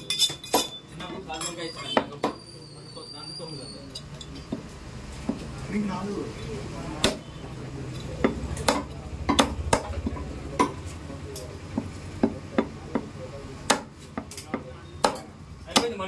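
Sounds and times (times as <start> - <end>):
cleaver chopping meat: 7.0 - 7.3, 8.2 - 10.8, 11.7 - 16.0.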